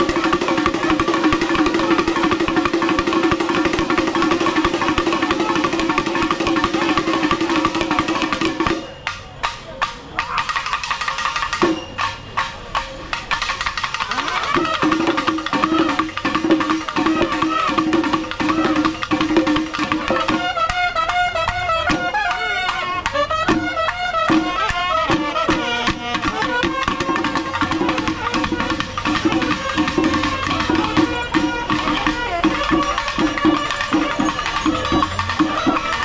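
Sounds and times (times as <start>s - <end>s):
fast dense drumming: 0.0s - 8.9s, 13.3s - 20.5s, 24.3s - 36.0s.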